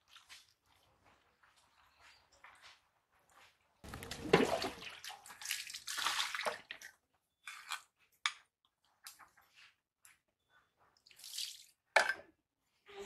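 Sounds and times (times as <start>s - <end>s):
water splashing and sloshing: 0.0s - 1.7s, 3.8s - 7.1s.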